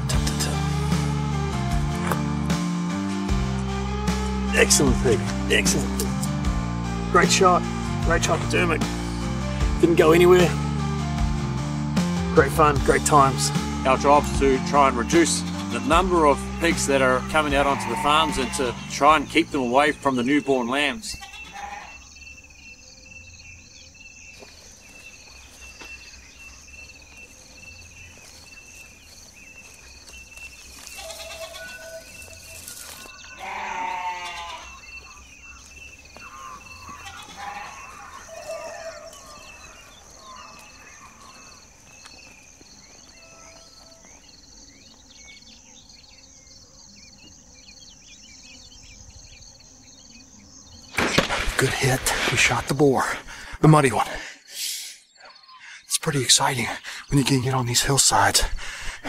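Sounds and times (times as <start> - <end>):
insects chirping: 0.0 - 59.0
ewe bleating: 12.8 - 22.0, 30.9 - 32.1, 32.8 - 35.2, 36.2 - 41.6.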